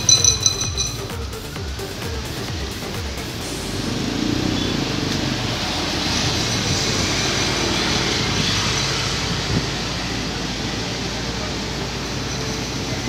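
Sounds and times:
cars and motorbikes passing: 0.0 - 13.0.

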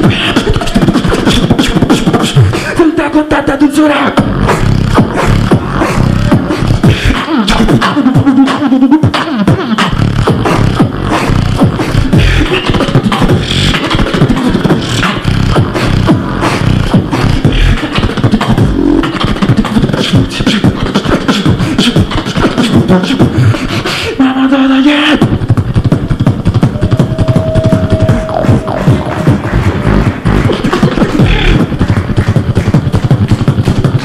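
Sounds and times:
beatboxing into a microphone: 0.0 - 34.0
hummed bass tone: 26.1 - 30.6.

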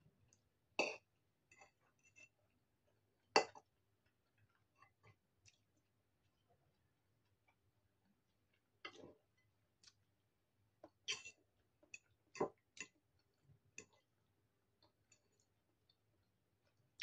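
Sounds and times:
fork scraping ceramic bowl: 11.1 - 11.4.

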